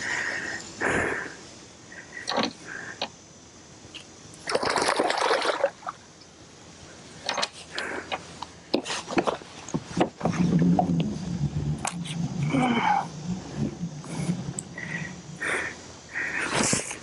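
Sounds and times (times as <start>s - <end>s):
fish splashing in water: 4.4s - 6.0s.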